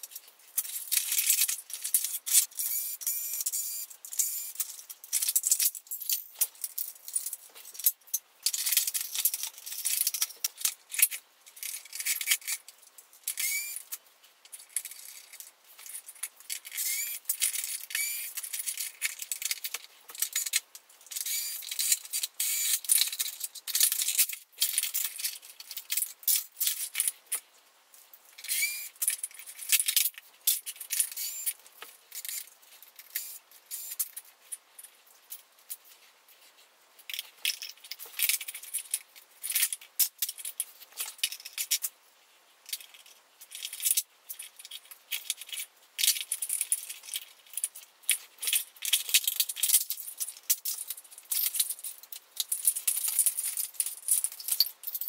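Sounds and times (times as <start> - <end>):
plastic parts and screws clinking: 0.0 - 42.0, 42.6 - 55.0
cordless screwdriver whirring: 13.4 - 13.8.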